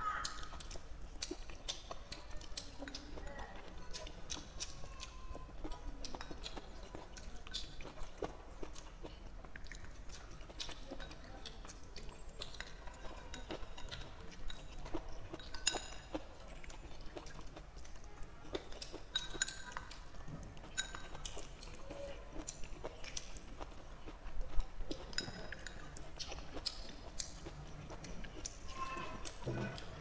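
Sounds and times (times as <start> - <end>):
chewing and biting: 0.2 - 30.0
chopsticks clinking on porcelain bowl: 12.6 - 16.2, 19.0 - 20.0, 20.6 - 21.4, 24.6 - 26.0.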